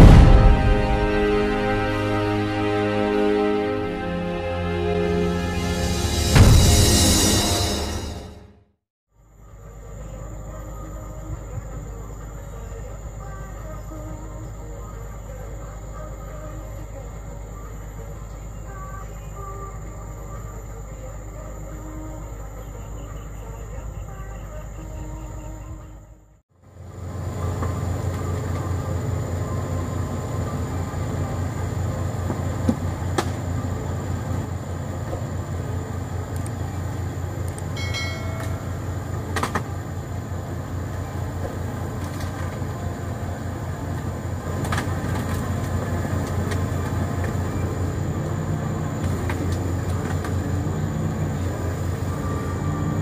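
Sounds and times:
excavator diesel engine droning: 0.0 - 8.5, 26.6 - 53.0
metal knocks and clanks: 6.3 - 8.0.

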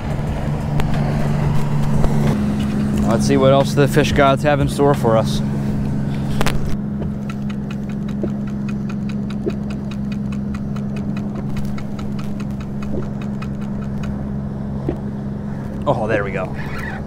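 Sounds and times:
watercraft engine idling: 0.0 - 17.0
light regular ticking: 5.8 - 15.9.

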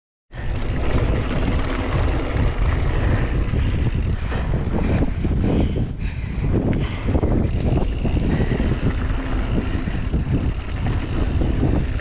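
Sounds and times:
bike rattling: 0.3 - 12.0
crunch of bike tyres on dirt: 0.4 - 5.1
wind buffeting microphone: 0.4 - 12.0.

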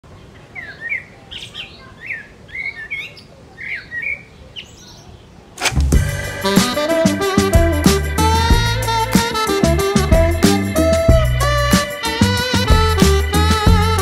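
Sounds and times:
birds chirping: 0.1 - 14.0
music with steady beat: 5.7 - 14.0.

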